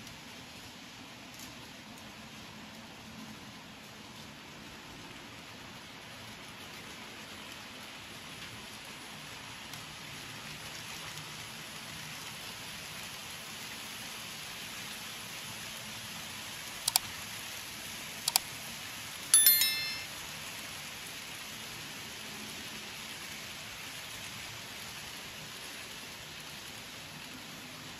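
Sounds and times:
short bell chime: 19.4s - 20.2s.

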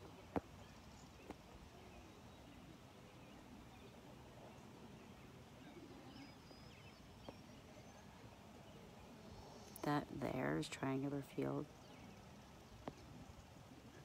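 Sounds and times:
faint bird chirps: 0.4s - 9.9s.

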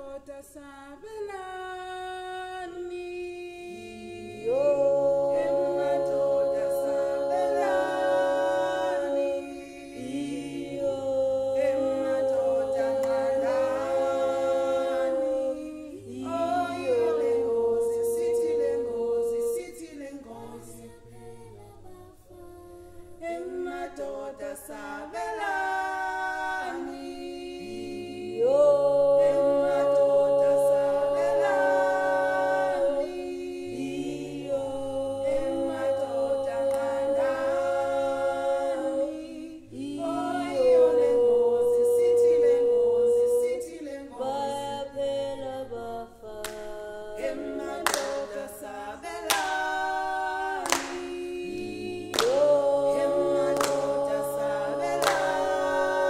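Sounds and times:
group singing in harmony: 0.0s - 56.0s
hand claps: 36.7s - 37.0s, 46.4s - 46.7s, 47.7s - 48.4s, 49.2s - 49.8s, 50.6s - 55.9s.

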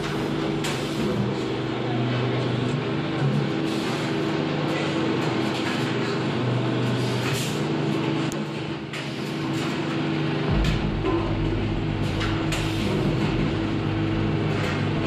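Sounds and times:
machinery droning hum: 0.0s - 15.0s.

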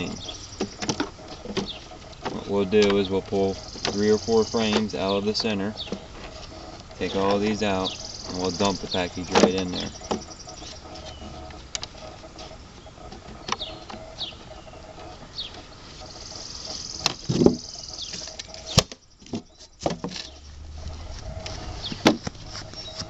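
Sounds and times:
high falling chirps: 7.0s - 11.4s, 12.6s - 23.0s
wooden frames knocking: 17.1s - 20.4s, 21.2s - 23.0s.

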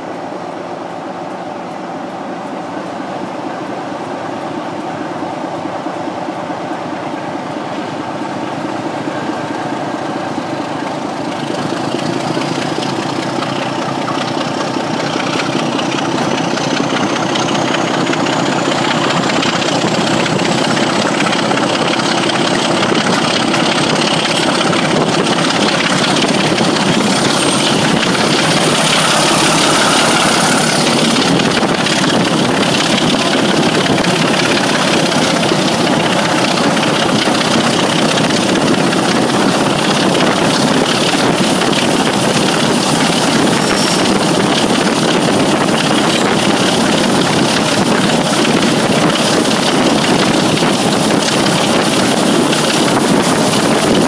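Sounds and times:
diesel locomotive engine working: 0.0s - 54.0s.

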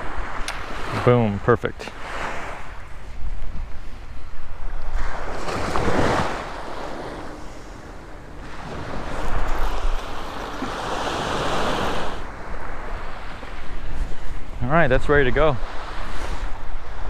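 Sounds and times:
wind rumble on microphone: 0.0s - 17.0s
surf washing onto beach: 4.6s - 17.0s.

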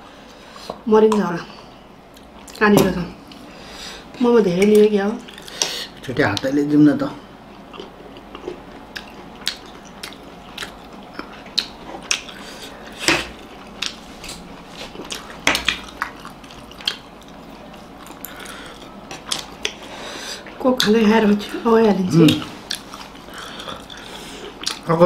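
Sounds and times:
close-up chewing and biting: 7.5s - 20.9s, 22.2s - 24.9s.

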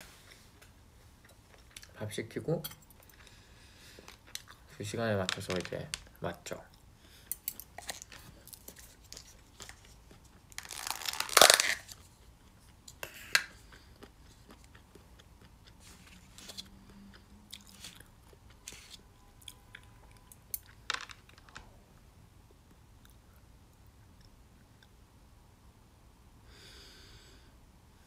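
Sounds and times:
food crunching: 2.9s - 21.6s
chewing and biting food: 7.6s - 10.6s, 12.0s - 18.8s.

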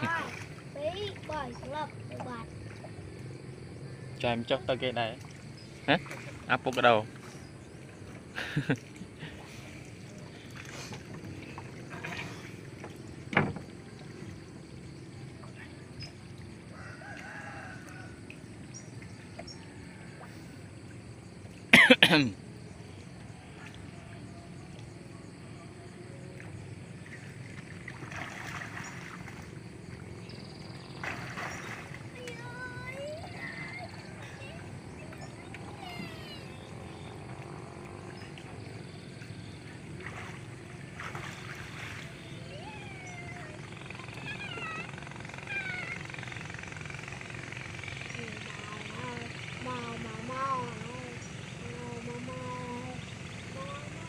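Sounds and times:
splashing rustles: 0.0s - 3.4s, 4.9s - 21.9s, 26.3s - 54.0s
boat engine humming: 0.0s - 54.0s
low background rumble: 0.0s - 54.0s
person coughing: 21.8s - 22.3s.

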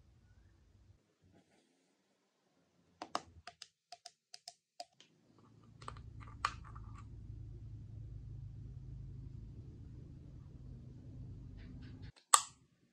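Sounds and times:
low background hum: 5.2s - 12.8s.

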